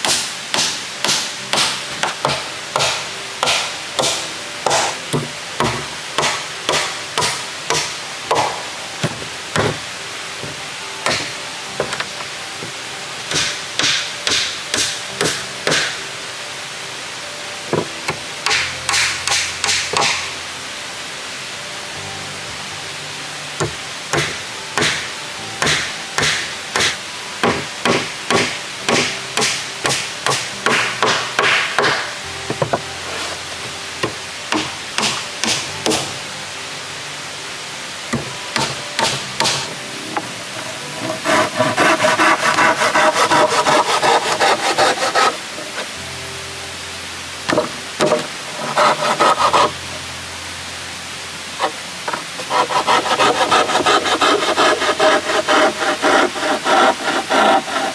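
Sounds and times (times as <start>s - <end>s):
scraping wooden planks: 38.6s - 45.9s, 47.5s - 49.8s, 51.6s - 57.9s.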